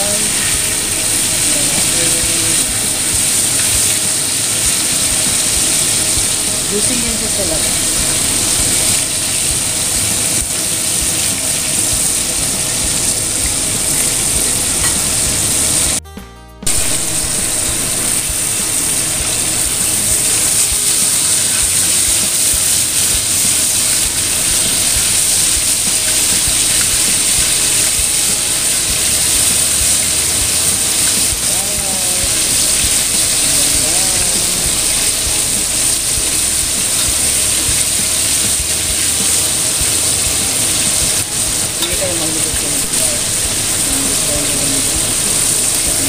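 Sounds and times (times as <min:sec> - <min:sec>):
chicken deep-frying in oil: 0:00.0 - 0:16.0, 0:16.7 - 0:46.0.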